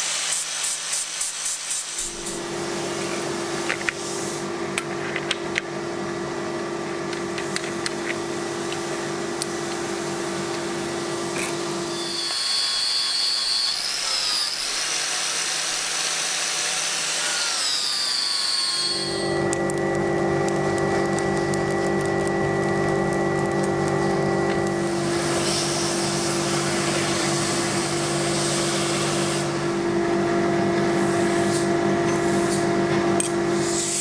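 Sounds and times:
angle grinders whining on steel: 9.4 - 27.8.

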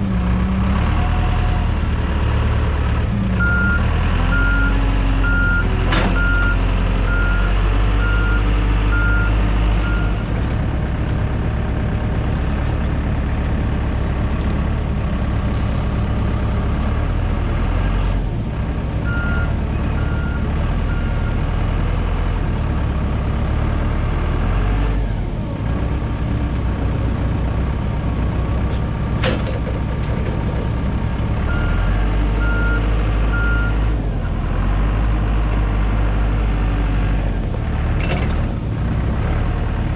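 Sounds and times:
heavy equipment engine running: 0.0 - 39.9
reversing alarm beeping: 18.4 - 21.3.

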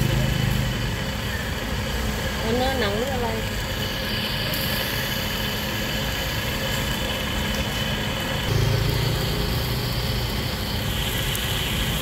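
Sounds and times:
motor running steadily: 0.0 - 12.0
low hum: 8.2 - 10.7.

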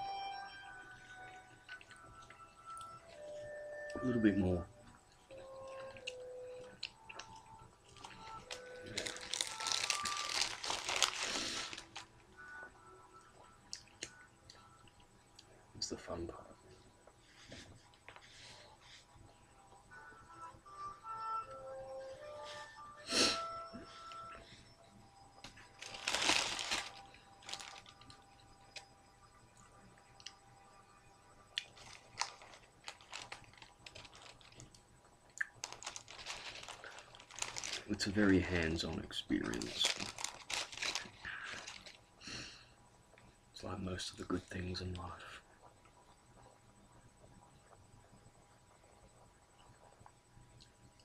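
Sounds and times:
paper wrapper crinkling: 7.0 - 12.2, 25.6 - 28.2, 31.6 - 42.1.

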